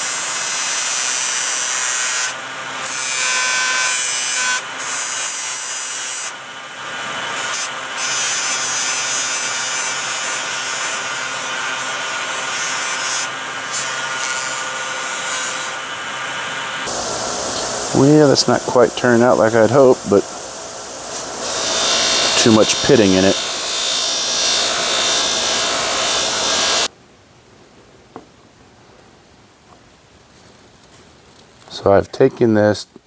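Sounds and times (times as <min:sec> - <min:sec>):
motor hum: 0:16.1 - 0:26.9
metal rubbing on buffing wheel: 0:17.0 - 0:26.9.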